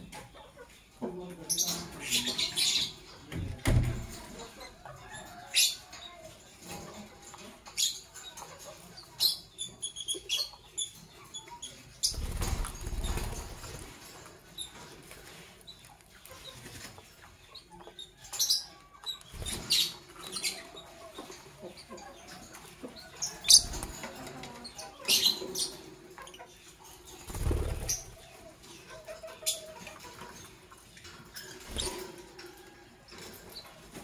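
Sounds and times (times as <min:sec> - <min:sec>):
lovebirds chirping: 0:15.6 - 0:30.0.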